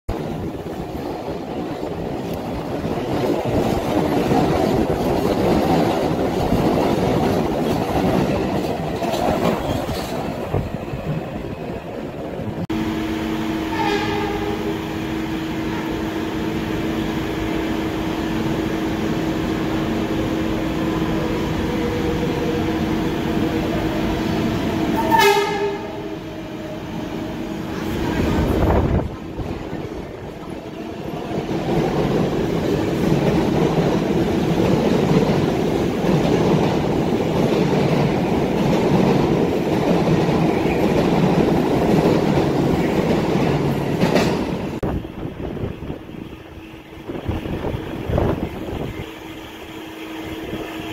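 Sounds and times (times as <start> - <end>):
subway train approaching tone: 0.1 - 50.9
train rumble and wheel noise: 0.1 - 50.9
train horn blast: 12.8 - 14.9, 24.9 - 26.1.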